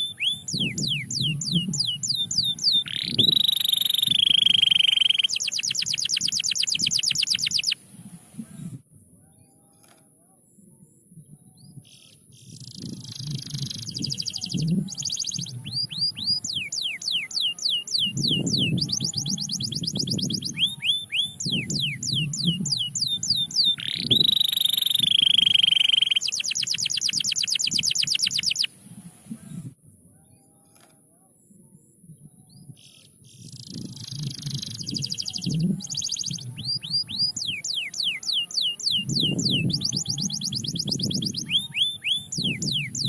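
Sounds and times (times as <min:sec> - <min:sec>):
canary singing: 0:00.0 - 0:07.8, 0:12.4 - 0:28.7, 0:33.4 - 0:43.0.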